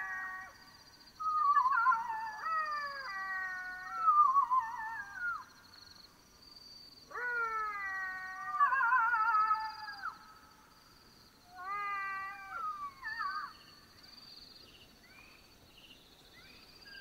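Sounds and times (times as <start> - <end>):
jackals howling: 1.2 - 5.5, 7.1 - 10.2.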